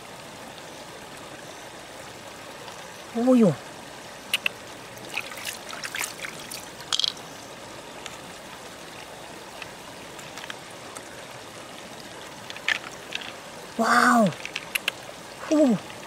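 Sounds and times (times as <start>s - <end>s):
trickling water: 0.0s - 16.0s
wet clicks and squelches of knife: 4.3s - 4.6s, 14.4s - 15.0s.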